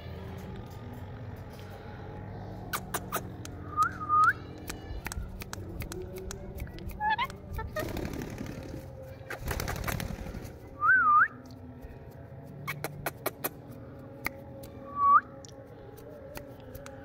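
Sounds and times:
sharp clicks: 0:02.8 - 0:07.7.

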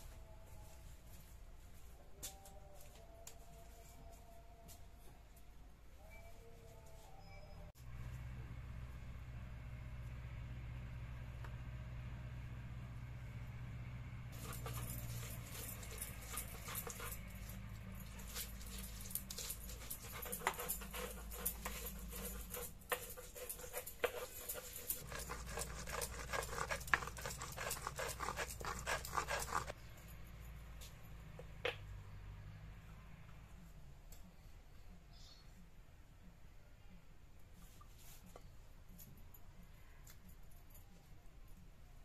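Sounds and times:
grinding stone scraping: 0:14.4 - 0:29.7.

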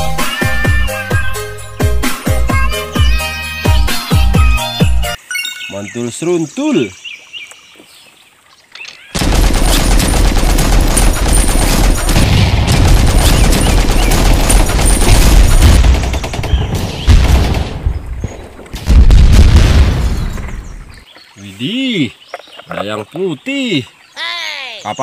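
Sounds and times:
machine-gun fire: 0:09.2 - 0:18.0, 0:18.8 - 0:20.5
heavy explosion booms: 0:09.2 - 0:20.9.

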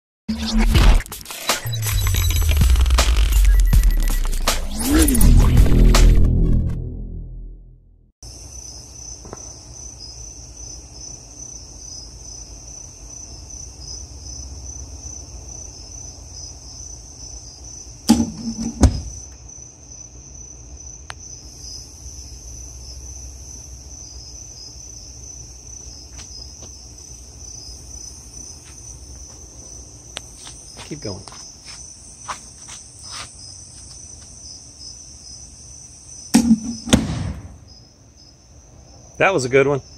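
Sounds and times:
crickets chirping: 0:08.2 - 0:39.9
loud short pops: 0:36.3 - 0:37.6.

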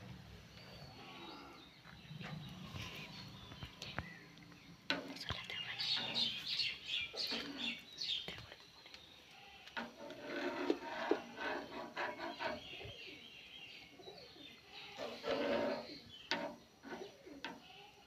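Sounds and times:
birds chirping: 0:00.0 - 0:17.9
metal spoon scraping pan: 0:09.8 - 0:12.9, 0:14.8 - 0:17.7.

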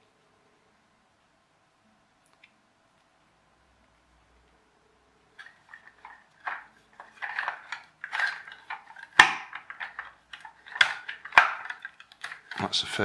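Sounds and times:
plastic toy rattling and rubbing: 0:05.4 - 0:13.0.

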